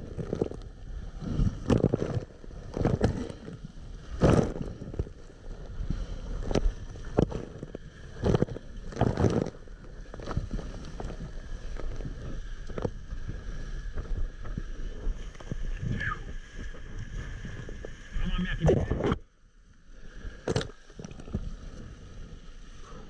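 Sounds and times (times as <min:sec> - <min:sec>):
wind on microphone: 0:00.0 - 0:19.2
rush of water: 0:00.0 - 0:23.0
waves slapping hull: 0:00.0 - 0:23.0.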